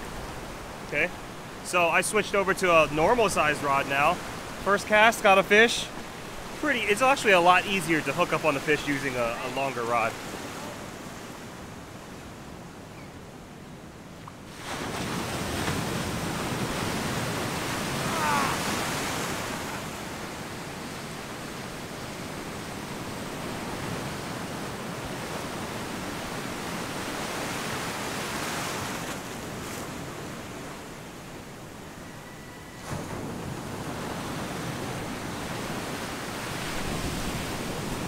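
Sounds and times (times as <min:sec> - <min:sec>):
ocean surf rushing: 0:00.0 - 0:12.8, 0:14.5 - 0:38.0.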